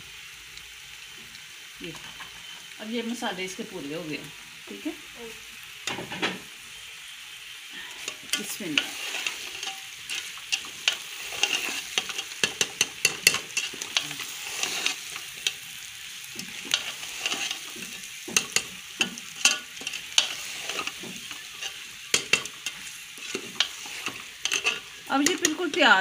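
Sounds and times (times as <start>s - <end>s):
food sizzling: 0.0s - 26.0s
metal spoon scraping a pot: 8.0s - 15.7s, 16.4s - 25.9s.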